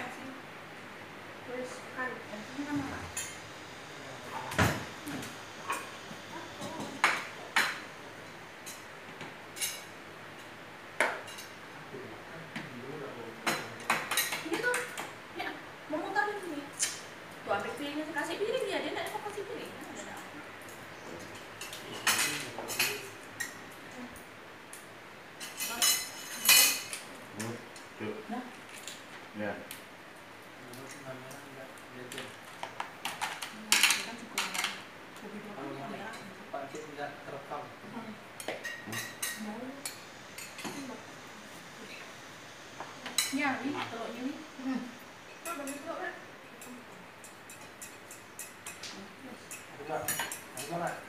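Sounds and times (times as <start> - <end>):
utensils clinking on plates: 20.2 - 23.7, 25.4 - 27.6, 38.4 - 40.9, 46.6 - 51.0.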